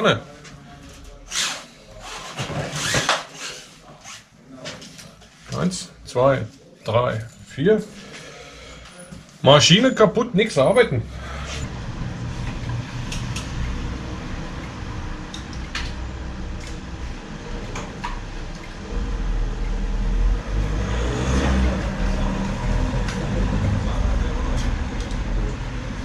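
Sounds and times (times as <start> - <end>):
street traffic rumble: 10.4 - 26.0.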